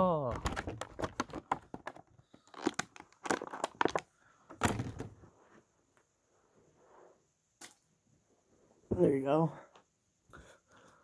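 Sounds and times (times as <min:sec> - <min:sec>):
plastic packet crinkling and tearing: 0:00.4 - 0:04.0.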